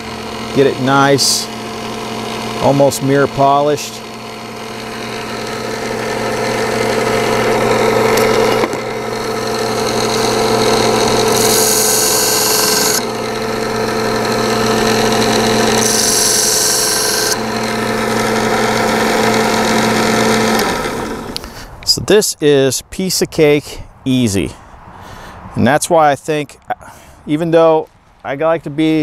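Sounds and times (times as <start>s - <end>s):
belt sander motor humming: 0.0s - 22.0s.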